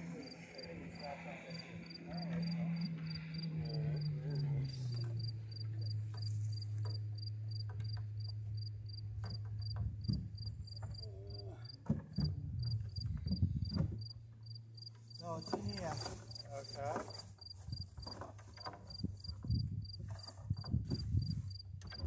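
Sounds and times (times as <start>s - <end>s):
steady low hum: 0.0s - 18.1s
cricket chirping: 0.0s - 22.0s
knocks and rattles: 4.8s - 22.0s.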